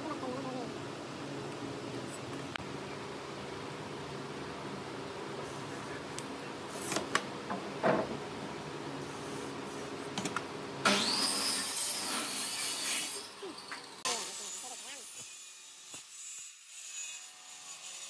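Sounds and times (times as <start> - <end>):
steady machine hum: 0.0 - 11.1.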